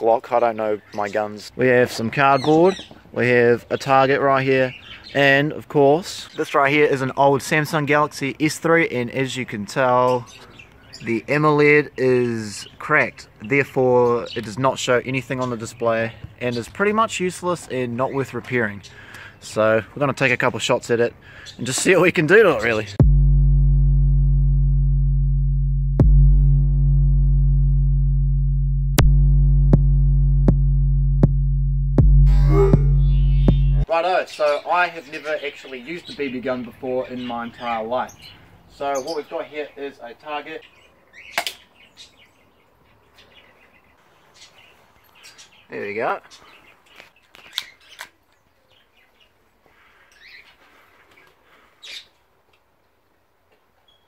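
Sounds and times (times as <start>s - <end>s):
bird chirps: 0.4s - 6.8s, 9.9s - 19.4s, 32.3s - 52.2s, 53.8s - 54.0s
low synth drone: 23.0s - 33.9s.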